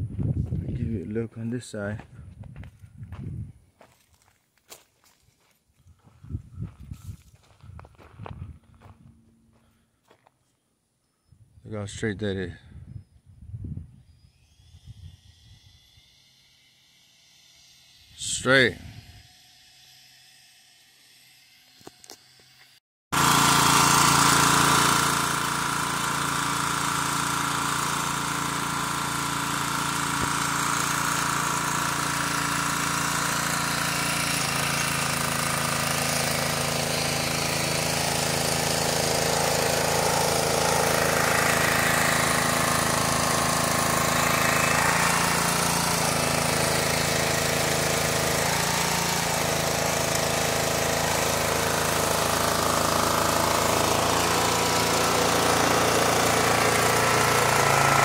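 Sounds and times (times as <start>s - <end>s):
engine-driven welder drone: 14.0s - 58.0s.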